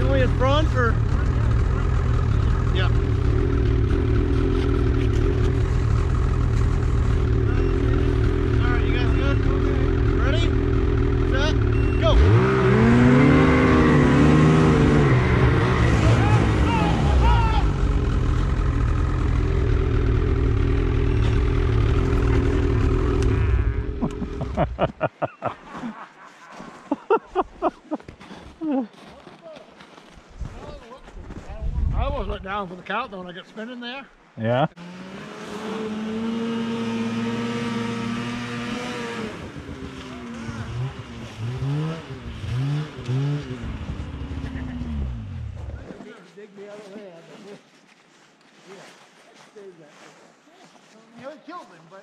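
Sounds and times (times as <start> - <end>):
snowmobile engine running: 0.0 - 25.6, 34.5 - 45.9.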